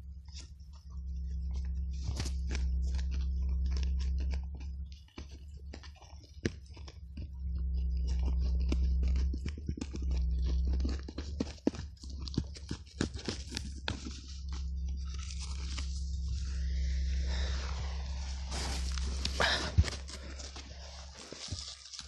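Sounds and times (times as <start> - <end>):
low steady hum: 0.0 - 22.0
hands scraping through soil: 12.8 - 22.0.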